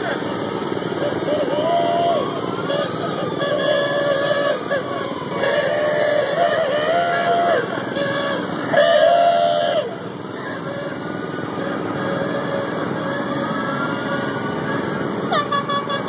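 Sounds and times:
small motors running: 0:00.0 - 0:16.0
car horn: 0:01.1 - 0:16.0.

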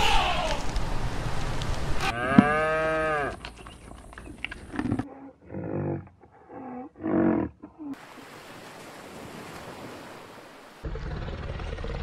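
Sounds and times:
low moo-like animal call: 0:02.0 - 0:03.4.

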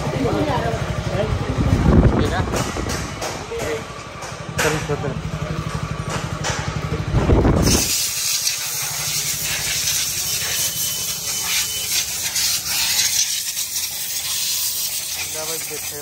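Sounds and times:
motorcycle engine: 0:00.0 - 0:16.0
steady hiss: 0:07.7 - 0:16.0.

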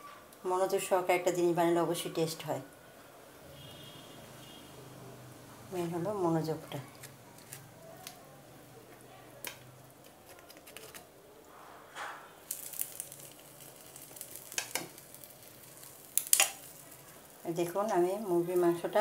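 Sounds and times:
faint sizzle: 0:00.0 - 0:19.0
utensil clicks against a pan: 0:16.2 - 0:16.7.

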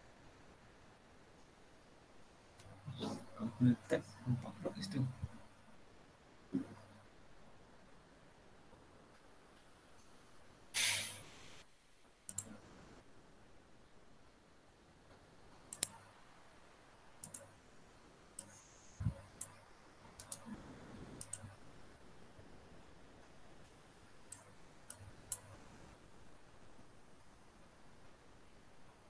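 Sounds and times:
short burst of noise: 0:10.8 - 0:11.4
sharp clicks: 0:12.3 - 0:12.6, 0:15.7 - 0:16.0, 0:17.2 - 0:17.5, 0:20.2 - 0:20.5, 0:21.2 - 0:21.6.

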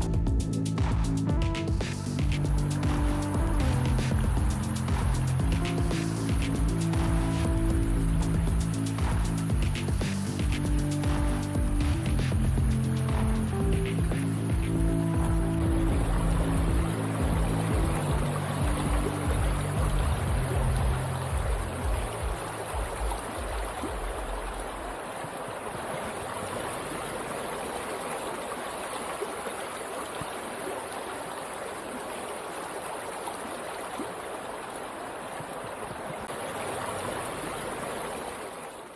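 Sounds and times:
low bass music: 0:00.0 - 0:24.8
creek water rushing: 0:00.0 - 0:38.9.

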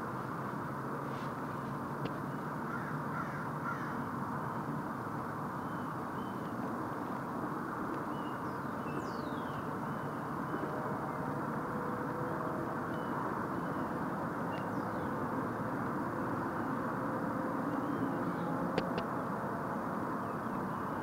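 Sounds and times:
outdoor background hum and hiss: 0:00.0 - 0:21.0
small birds chirping: 0:07.9 - 0:11.2, 0:12.8 - 0:15.4.

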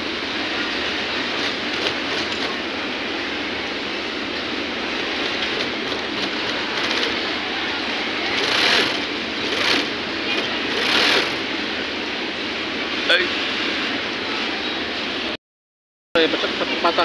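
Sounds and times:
sewing machine stitching: 0:05.4 - 0:07.2, 0:08.3 - 0:11.4.

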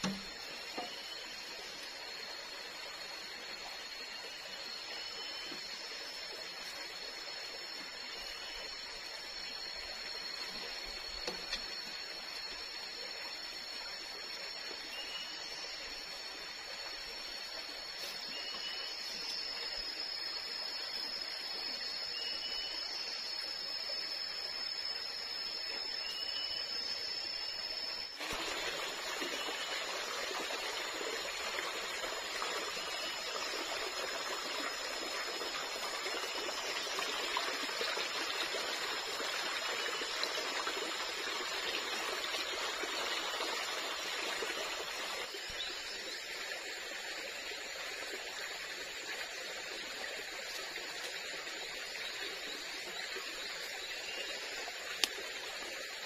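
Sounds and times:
high insect drone: 0:00.0 - 0:56.0
stream rushing: 0:28.2 - 0:45.5.

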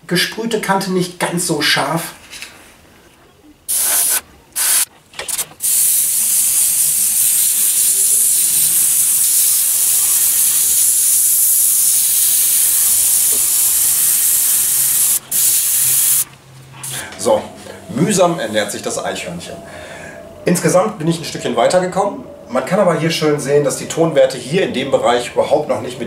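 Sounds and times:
airbrush spraying hiss: 0:03.7 - 0:04.9, 0:05.6 - 0:16.2.

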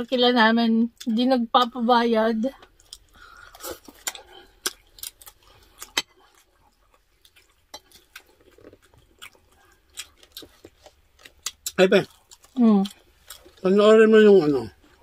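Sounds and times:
chewing: 0:02.6 - 0:13.7.

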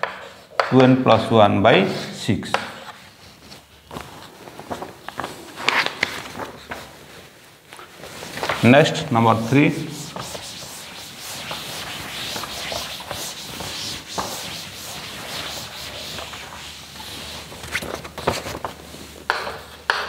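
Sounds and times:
chalk tapping on board: 0:00.0 - 0:00.7, 0:02.5 - 0:02.9, 0:10.0 - 0:16.4, 0:19.3 - 0:20.0
duster wiping chalkboard: 0:00.0 - 0:20.0.

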